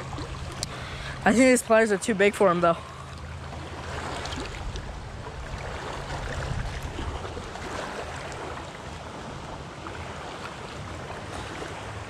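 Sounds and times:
wind rumbling on microphone: 3.5 - 12.0.

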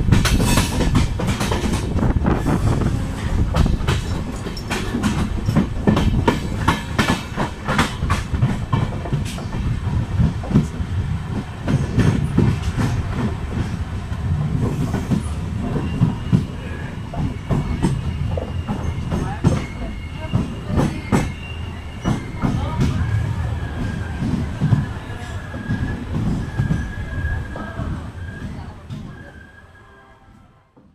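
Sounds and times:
train wheels clattering over rail joints: 0.0 - 23.0
high squeal of wheels: 15.7 - 23.0, 24.8 - 30.2.

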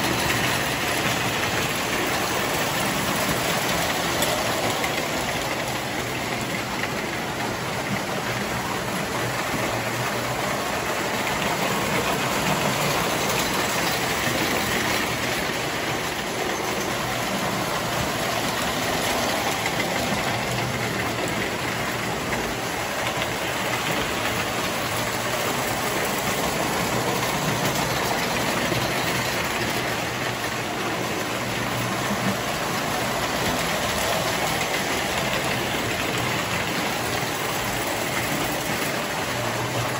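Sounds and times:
metal wheels rattling on rails: 0.0 - 39.9
toy train motors humming: 0.0 - 39.9.

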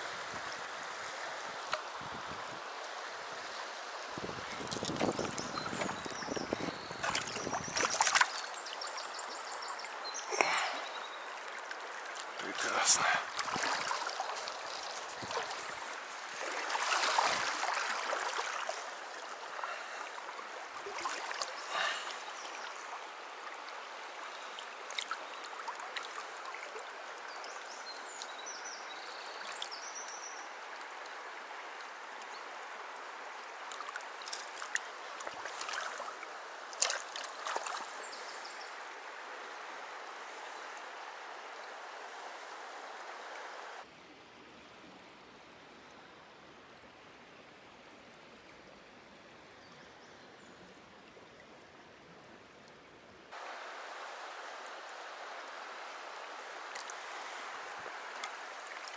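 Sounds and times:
water splashes: 0.0 - 23.7, 24.4 - 28.3, 33.6 - 38.6, 53.3 - 58.9
stream flowing: 0.0 - 58.9.

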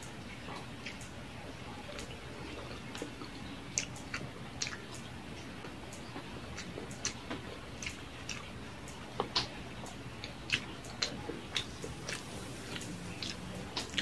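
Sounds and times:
person chewing food: 0.5 - 1.1, 1.8 - 14.0
mouth clicks and lip smacks: 1.9 - 14.0
rain hissing: 11.6 - 14.0.

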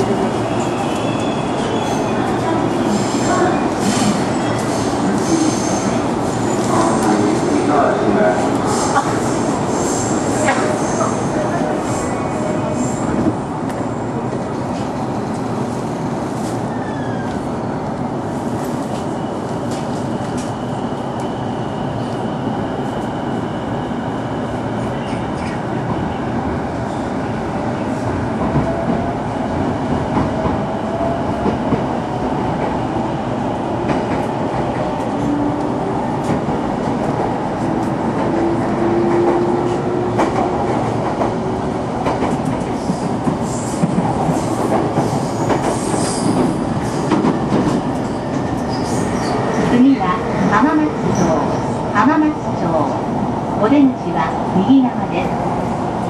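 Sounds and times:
train wheel noise: 33.5 - 52.9.

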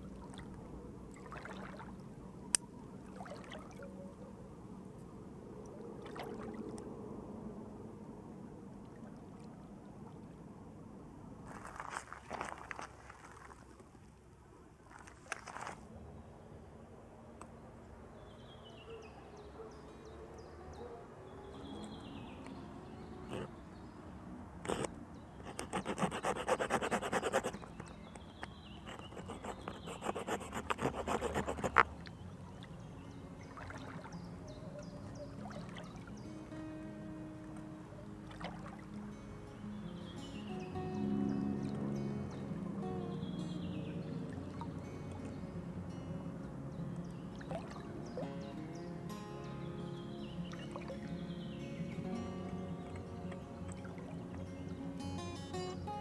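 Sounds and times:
crackling rustle: 11.4 - 14.1, 14.8 - 15.9
folding saw rasping through wood: 24.7 - 24.9, 25.5 - 27.6, 28.9 - 31.8.

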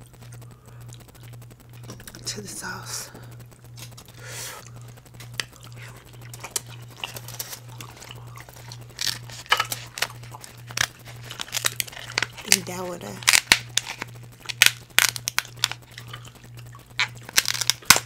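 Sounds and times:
chewing and crunching: 0.0 - 2.4, 3.1 - 18.0
shell cracks: 6.3 - 16.4, 17.0 - 18.0.

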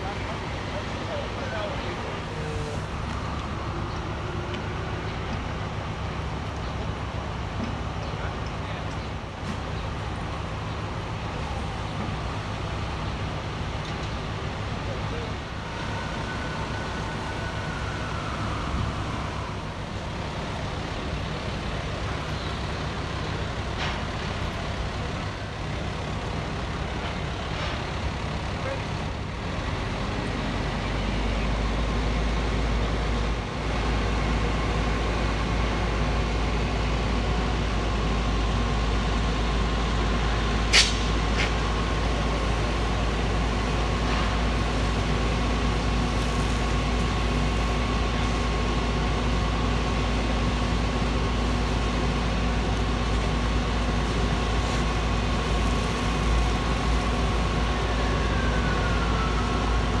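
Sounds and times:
fire engine pump running: 0.0 - 60.0
sharp crack: 40.7 - 41.7.

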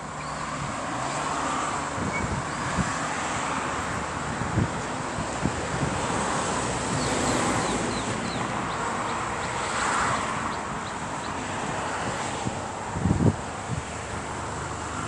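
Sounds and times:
traffic noise: 0.0 - 15.0
small birds chirping: 7.0 - 11.4.

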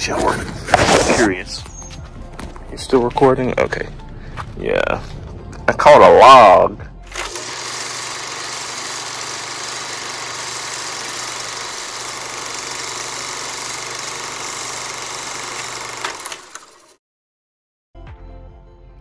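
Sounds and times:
film projector whirring: 7.1 - 17.0.

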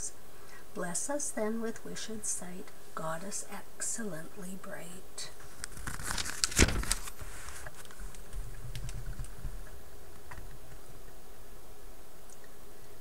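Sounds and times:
book page rustling: 5.4 - 9.5
faint handling sounds: 5.4 - 10.8.

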